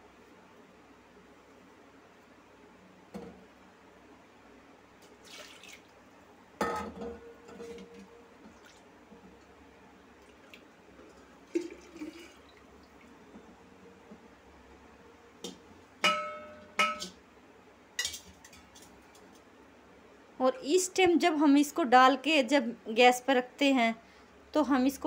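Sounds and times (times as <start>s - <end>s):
kitchen utensils knocking and clinking: 16.0s - 17.2s.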